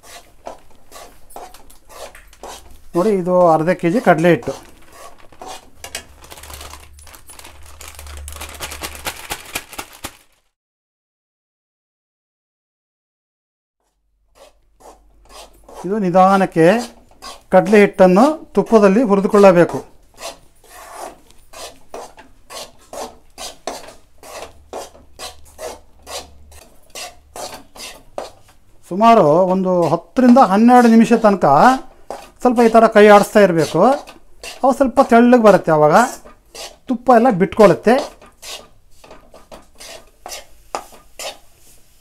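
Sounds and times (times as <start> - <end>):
steel spoon scraping a pan: 0.0 - 6.2, 13.8 - 42.0
plastic packet crinkling: 4.1 - 10.6.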